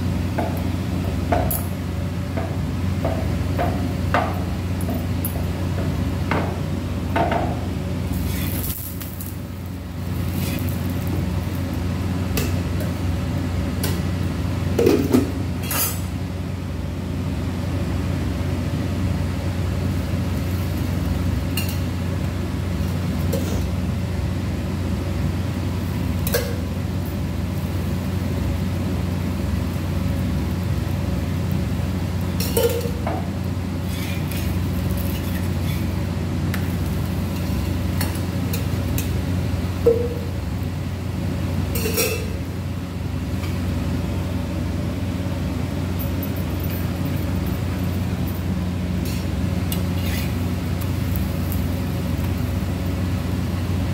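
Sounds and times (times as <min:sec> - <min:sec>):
steady low hum: 0:00.0 - 0:53.9
spatula clinking on griddle: 0:41.8 - 0:42.4.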